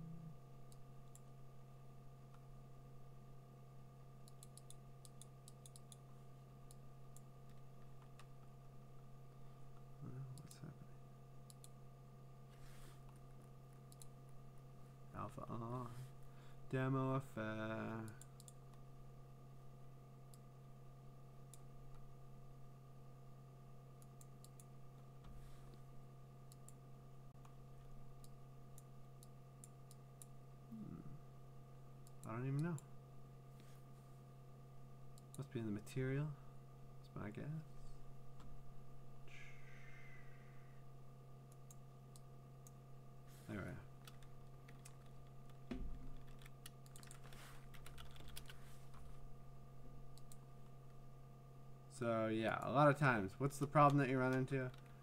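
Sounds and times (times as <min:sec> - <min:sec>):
steady low hum: 0:00.0 - 0:55.0
computer mouse clicks: 0:04.2 - 0:06.0, 0:11.4 - 0:11.8, 0:13.9 - 0:14.1, 0:18.0 - 0:18.6, 0:24.0 - 0:24.7, 0:46.2 - 0:48.6, 0:50.2 - 0:50.4
keyboard keys clicking: 0:46.2 - 0:48.6.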